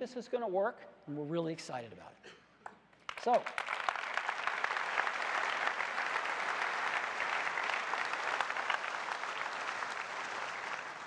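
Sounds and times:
large audience applauding: 0:03.0 - 0:11.0.

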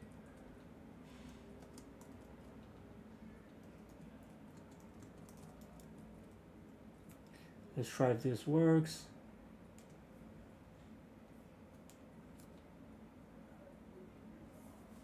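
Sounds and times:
typing on keyboard: 0:01.6 - 0:02.8, 0:03.4 - 0:06.4, 0:09.8 - 0:10.0.

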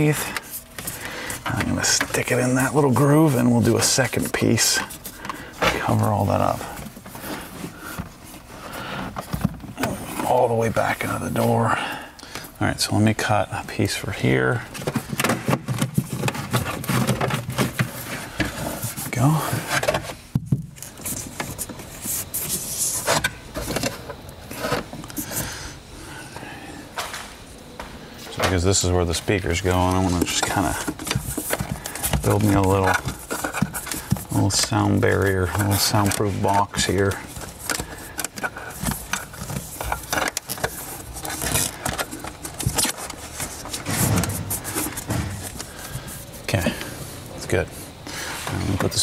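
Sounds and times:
rustling and clicks of wiring: 0:27.0 - 0:47.6.

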